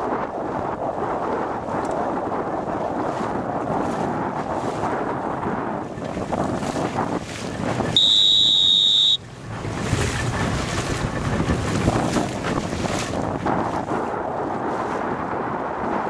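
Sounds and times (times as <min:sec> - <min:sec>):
choppy sea water: 0:00.0 - 0:16.0
wind buffeting microphone: 0:00.0 - 0:16.0
high-pitched beep: 0:08.0 - 0:09.2.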